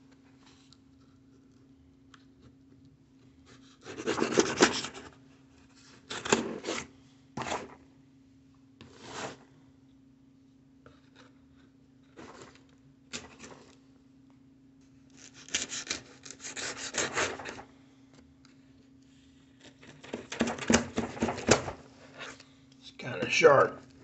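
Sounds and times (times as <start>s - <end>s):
knife scraping through packing tape: 3.8s - 5.1s, 6.1s - 6.9s, 15.2s - 17.6s.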